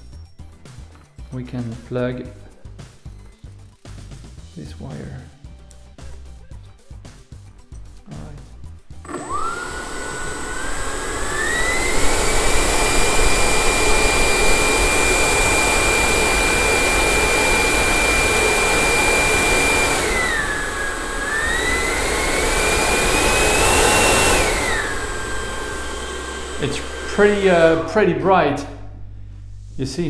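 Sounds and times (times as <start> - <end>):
electric ducted fan whine: 8.9 - 30.0.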